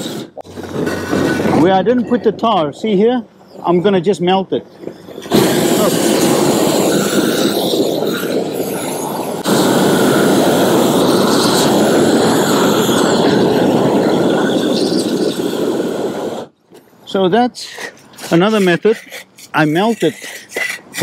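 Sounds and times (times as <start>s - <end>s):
roofing torch flame rushing: 4.9s - 16.5s.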